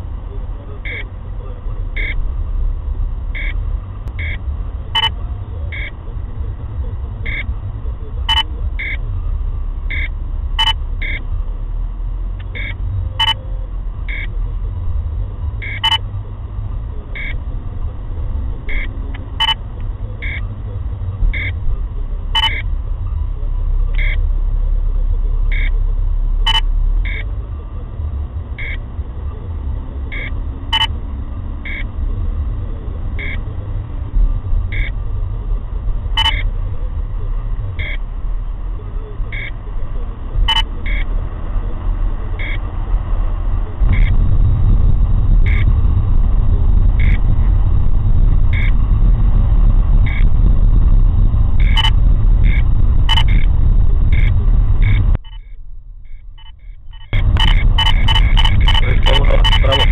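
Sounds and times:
low rumble of car in traffic: 0.0 - 59.9
radar detector two-tone beeps: 0.8 - 1.1, 2.0 - 2.2, 3.4 - 3.6, 4.2 - 4.4, 5.0 - 6.0, 7.2 - 7.5, 8.3 - 9.0, 9.9 - 11.2, 12.5 - 13.4, 14.1 - 14.3, 15.6 - 16.0, 17.2 - 17.4, 18.7 - 19.6, 20.2 - 20.5, 21.3 - 21.6, 22.4 - 22.7, 24.0 - 24.2, 25.5 - 25.8, 26.5 - 27.3, 28.6 - 28.8, 30.1 - 30.9, 31.6 - 31.9, 33.2 - 33.4, 34.7 - 35.0, 36.2 - 36.5, 37.8 - 38.0, 39.3 - 39.6, 40.5 - 41.1, 42.4 - 42.6, 43.9 - 44.2, 45.5 - 45.7, 47.0 - 47.2, 48.5 - 48.8, 50.1 - 50.3, 51.6 - 53.5, 54.1 - 59.9.

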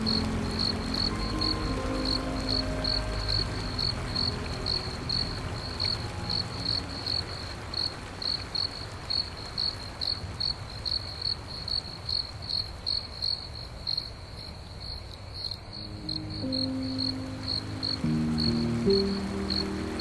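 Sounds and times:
low drone: 0.0 - 8.1.

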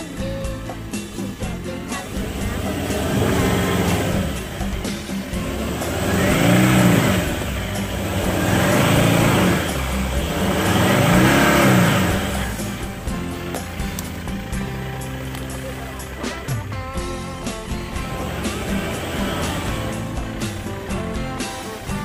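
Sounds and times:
diesel engine revving: 0.0 - 22.0.

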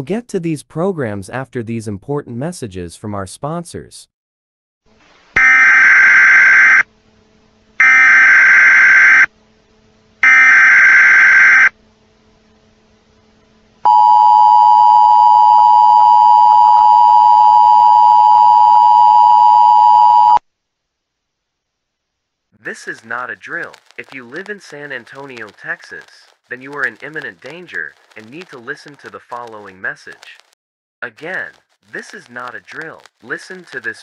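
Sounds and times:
buzzy data bursts: 22.7 - 30.4.

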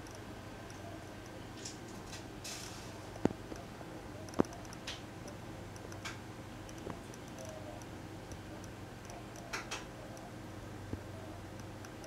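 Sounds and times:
steady low hum: 0.0 - 12.0
sharp clicks: 4.3 - 9.9.

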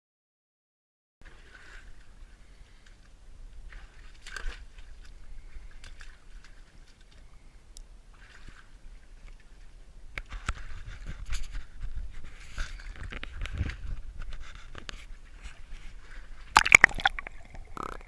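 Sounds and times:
wind rumble on microphone: 10.2 - 16.5
camera handling scrapes and knocks: 10.4 - 15.2.

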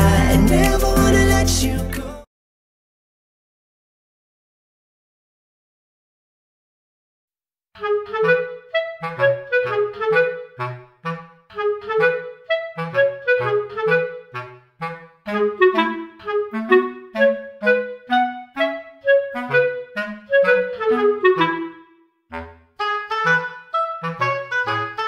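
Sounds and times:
light woodwind tune with bass: 7.8 - 25.0.

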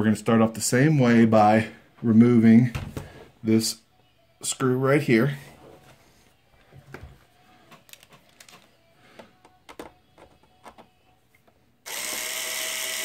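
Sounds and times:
powered screwdriver whine: 11.9 - 13.0.

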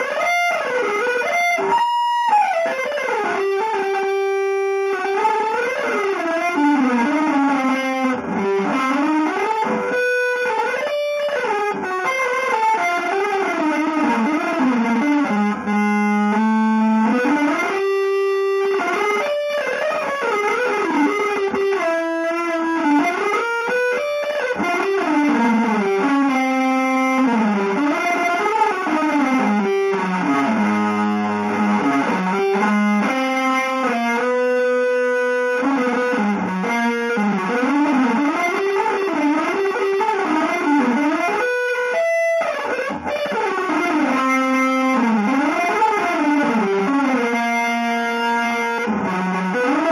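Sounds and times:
electric guitar improvising: 0.0 - 49.9.

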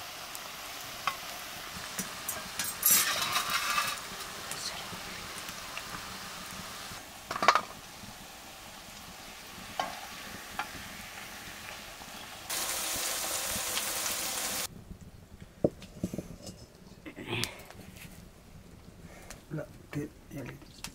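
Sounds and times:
food sizzling in a pan: 0.0 - 14.7
metal spoon clinking against pan: 2.0 - 4.1.

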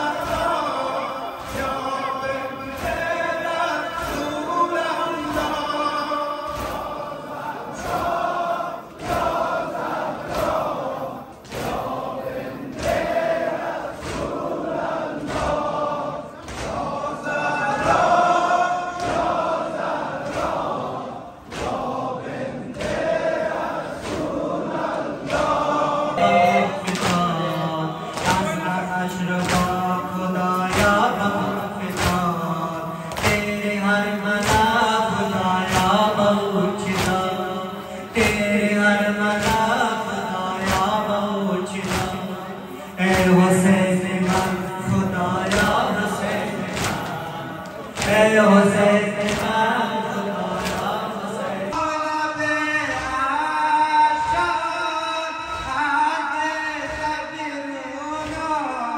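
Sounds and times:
man chanting into a microphone: 0.0 - 8.1, 25.4 - 58.9
crowd of men chanting: 0.0 - 58.9.

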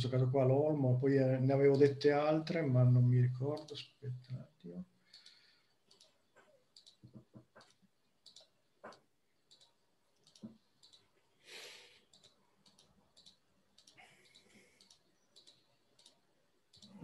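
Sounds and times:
faint irregular clicking: 3.5 - 11.3, 12.0 - 17.0.

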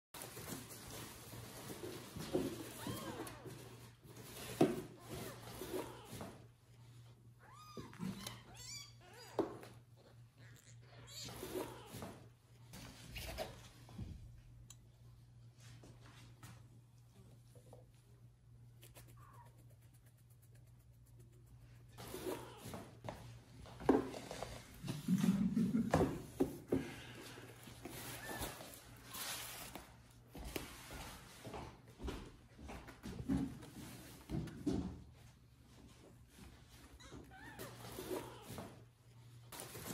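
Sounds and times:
faint squeak: 7.4 - 9.6, 10.4 - 12.2
kittens mewing: 10.2 - 12.3, 18.8 - 19.8.

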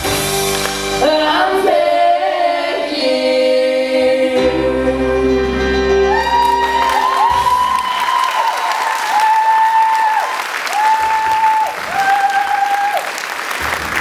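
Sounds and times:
audience applause: 6.1 - 14.0.

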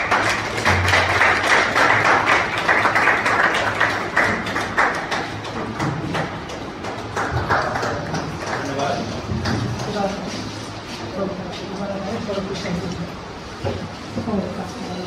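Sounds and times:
audience clapping: 0.0 - 10.2.

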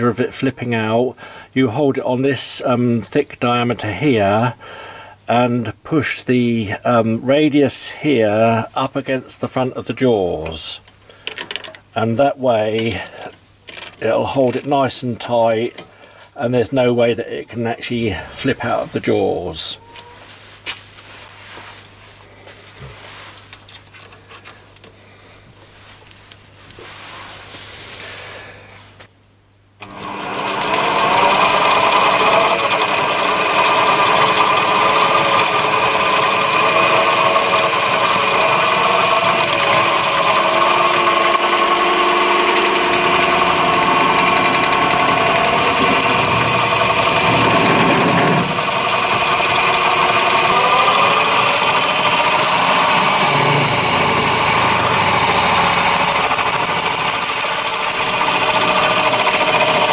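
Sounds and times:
lathe motor and gear whine: 29.8 - 59.9
drill chuck handling: 38.3 - 59.9.

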